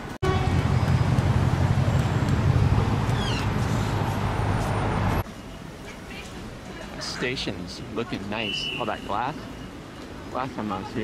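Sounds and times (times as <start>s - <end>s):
passing cars rumbling: 0.0s - 5.3s.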